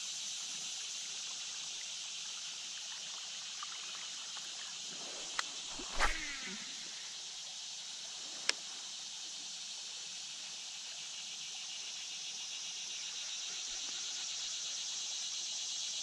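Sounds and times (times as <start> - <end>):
high-pitched insect chorus: 0.0 - 16.0
sharp click: 5.4 - 6.5.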